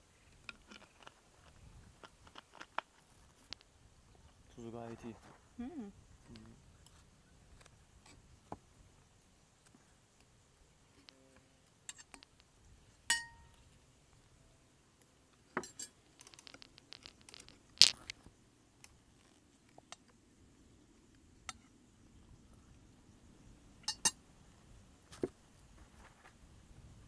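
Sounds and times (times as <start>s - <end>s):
glass struck ringing: 13.1s - 13.5s
sharp tableware clatter: 13.1s - 13.5s
tableware clicks and scrapes: 15.5s - 18.1s, 23.8s - 24.2s.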